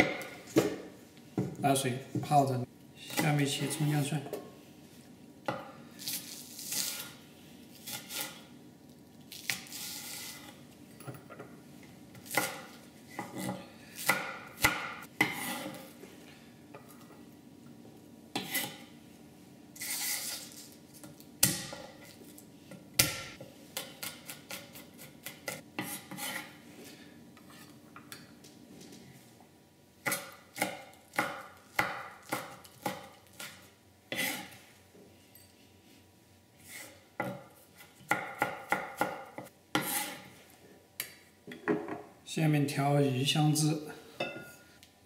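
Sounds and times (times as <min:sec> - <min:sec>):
knife scraping cutting board: 0:07.8 - 0:08.5, 0:09.5 - 0:10.6, 0:15.2 - 0:16.0, 0:18.4 - 0:18.9, 0:19.8 - 0:20.8, 0:24.0 - 0:26.6, 0:33.4 - 0:34.7, 0:36.6 - 0:37.0, 0:39.8 - 0:40.4
knife chopping on cutting board: 0:12.2 - 0:15.9, 0:36.7 - 0:40.2.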